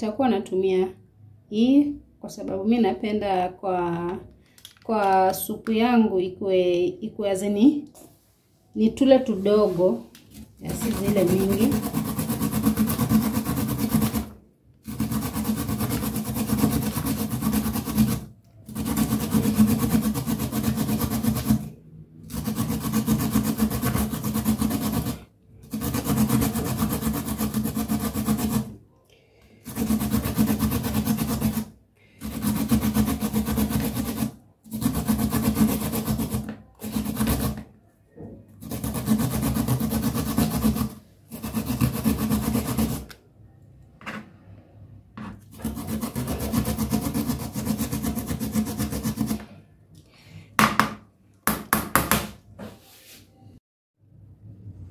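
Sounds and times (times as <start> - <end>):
carrot rasping on a grater: 10.7 - 21.7, 22.3 - 28.8, 29.6 - 37.6, 38.6 - 43.2, 45.4 - 49.4.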